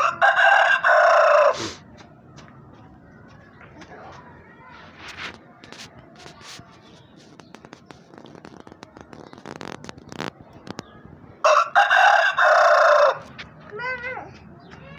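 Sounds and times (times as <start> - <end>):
rooster crowing: 0.0 - 1.6, 11.4 - 13.2.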